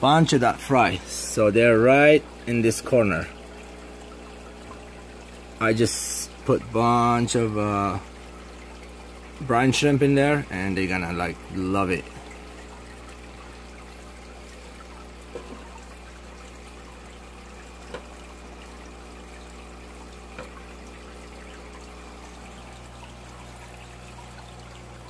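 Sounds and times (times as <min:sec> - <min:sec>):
aquarium water trickling: 0:00.0 - 0:25.0
faint taps: 0:17.8 - 0:18.2, 0:20.4 - 0:20.6.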